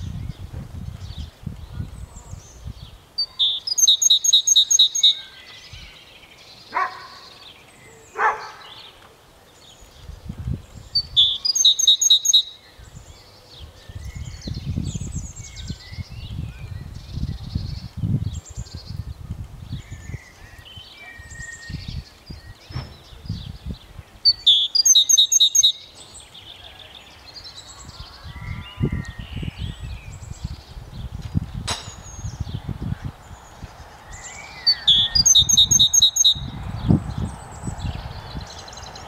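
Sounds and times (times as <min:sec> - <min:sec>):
birds singing and calling: 0:00.0 - 0:39.0
bird rapid repeated notes: 0:34.8 - 0:36.4.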